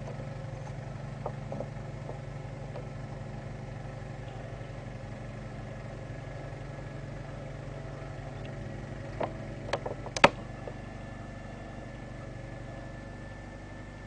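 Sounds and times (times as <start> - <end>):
sharp clicks and knocks: 0.0 - 2.9, 8.4 - 10.8
snow thrower working: 0.0 - 14.0
tractor engine running: 0.0 - 14.0.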